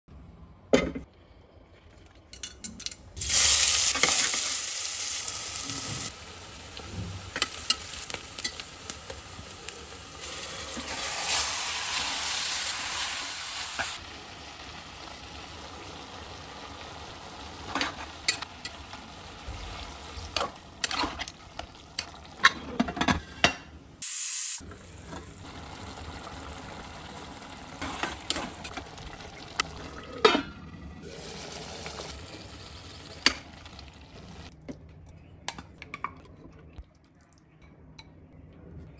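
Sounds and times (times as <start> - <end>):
curry sizzling in hot oil: 3.2 - 21.0.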